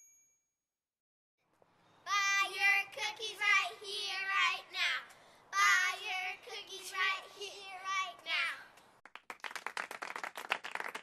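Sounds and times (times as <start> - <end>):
girls chanting: 2.1 - 7.8.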